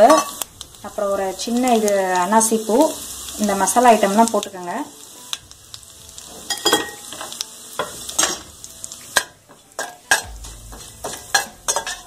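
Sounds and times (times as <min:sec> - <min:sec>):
spices sizzling in hot oil: 0:00.0 - 0:12.0
metal spoon scraping pan: 0:09.2 - 0:12.0.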